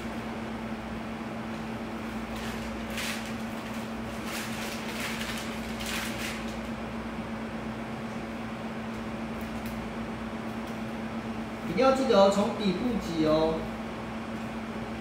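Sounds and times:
steady low hum: 0:00.0 - 0:15.0
plastic bag crinkling: 0:02.3 - 0:06.7.

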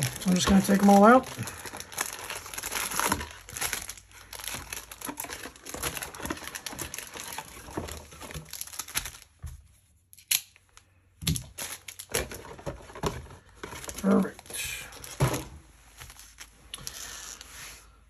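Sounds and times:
foil wrappers crinkling: 0:00.0 - 0:09.4, 0:11.4 - 0:15.2, 0:15.8 - 0:17.6.

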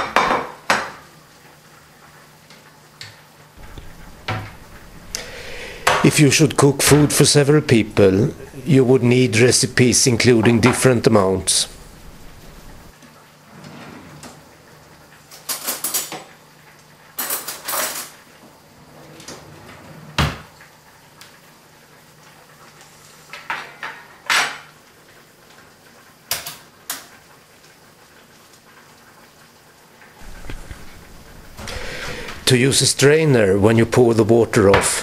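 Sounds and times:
pots and utensils clattering: 0:03.6 - 0:12.9, 0:15.2 - 0:16.4, 0:17.1 - 0:18.2, 0:23.3 - 0:24.8, 0:30.2 - 0:33.2.

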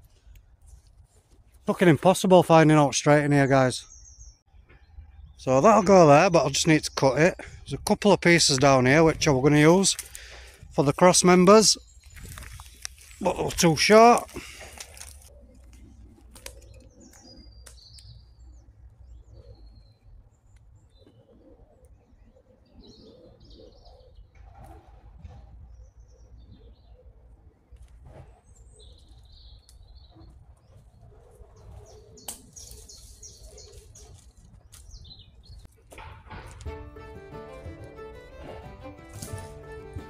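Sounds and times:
small birds chirping: 0:03.4 - 0:24.4, 0:25.6 - 0:35.9.

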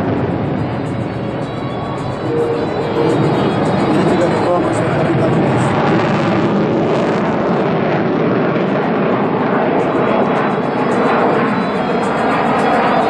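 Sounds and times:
jet engine roar: 0:00.0 - 0:13.0.

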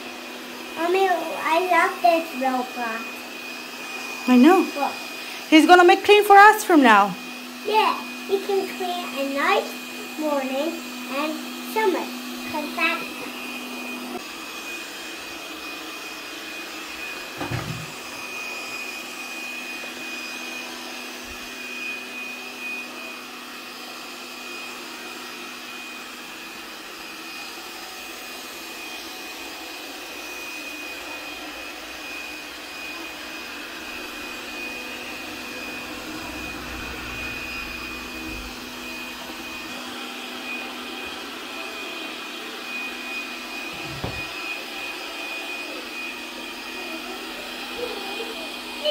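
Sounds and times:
robot vacuum whirring: 0:00.0 - 0:48.9
knock: 0:43.8 - 0:44.2.

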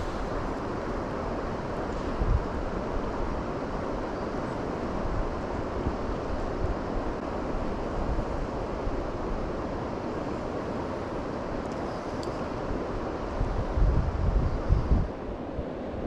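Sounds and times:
wind buffeting microphone: 0:00.0 - 0:04.0, 0:12.6 - 0:16.0
fast-running river rushing: 0:00.0 - 0:16.0.

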